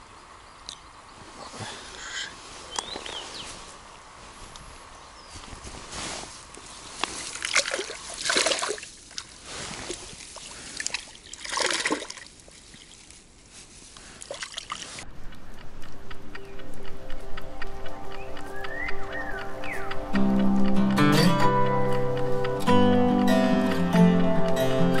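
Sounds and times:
water splashing and sloshing: 5.9 - 15.1
background music: 16.0 - 25.0.

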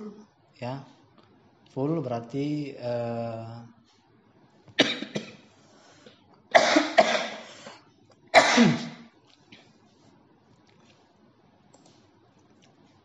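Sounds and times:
man coughing: 4.8 - 5.5, 6.5 - 7.5, 8.4 - 9.1.

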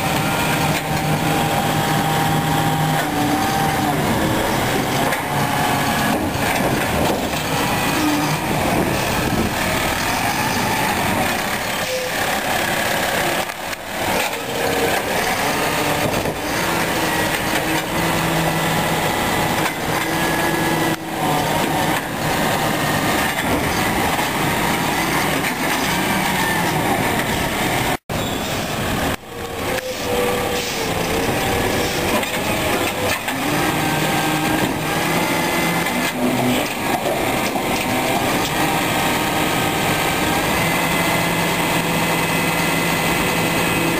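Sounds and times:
garbage truck engine running: 0.0 - 43.9
hydraulic arm tipping cart: 0.0 - 43.9.

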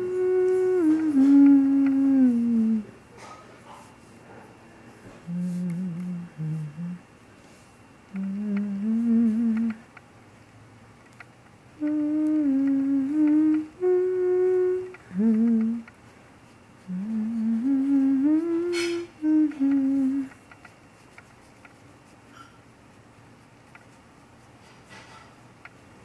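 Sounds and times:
person humming a slow tune: 0.0 - 3.0, 5.2 - 7.1, 8.1 - 9.9, 11.8 - 15.9, 16.8 - 20.4.

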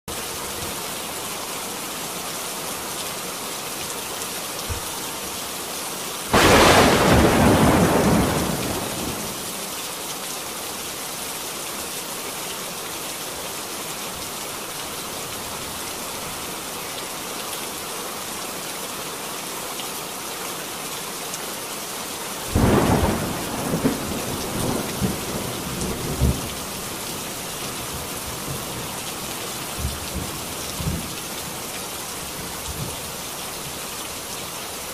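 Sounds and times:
steady rain: 0.1 - 34.9
thunder clap and rumble: 6.3 - 9.4, 22.6 - 26.8, 29.7 - 31.2.

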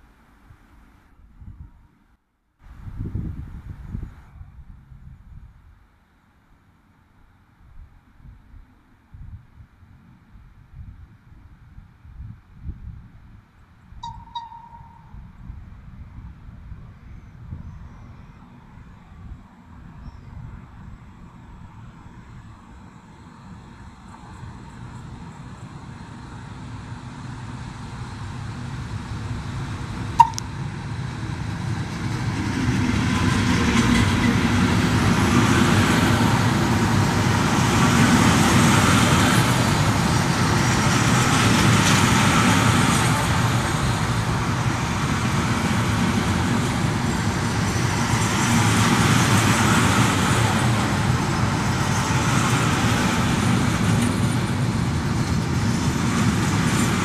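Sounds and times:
train wheels rumbling on rails: 23.8 - 57.0
sharp click: 30.2 - 30.5.

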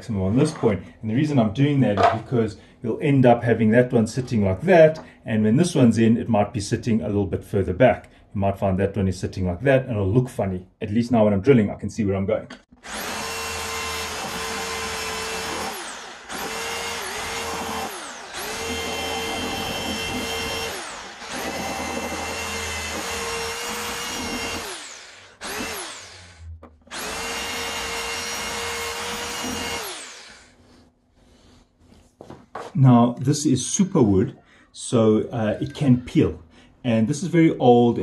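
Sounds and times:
electric drill drilling wood: 12.8 - 30.6.

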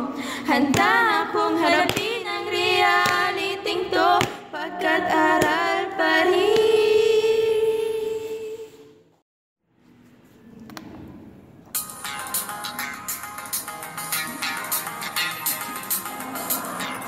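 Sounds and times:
young voices singing together: 0.0 - 9.0.

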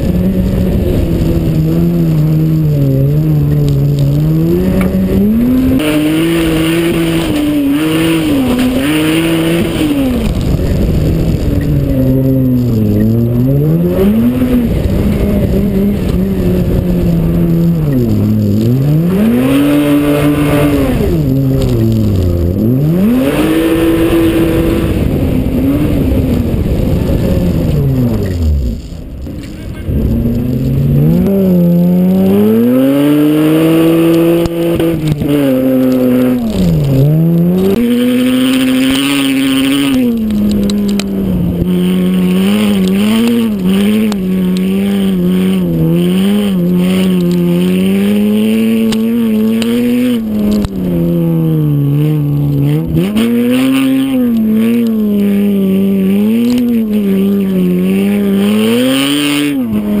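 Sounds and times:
car engine revving: 0.0 - 60.0.

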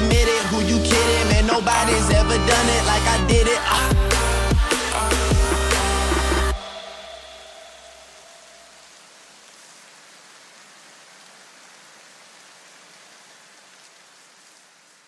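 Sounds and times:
hip-hop beat: 0.0 - 8.1
soft rain-like hiss: 5.8 - 15.0.

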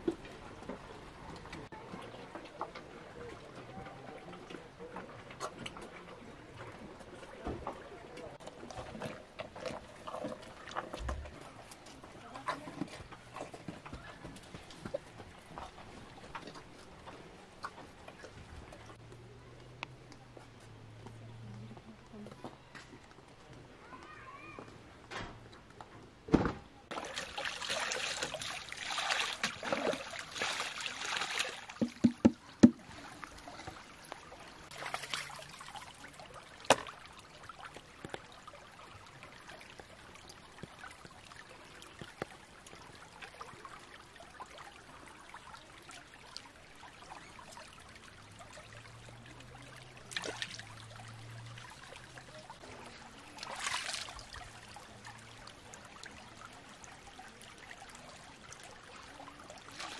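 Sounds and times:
water trickling and splashing: 0.0 - 24.6, 26.8 - 59.9
hands splashing in water: 26.9 - 33.1, 50.0 - 50.8, 53.4 - 54.4
sharp knocks: 31.8 - 32.8.

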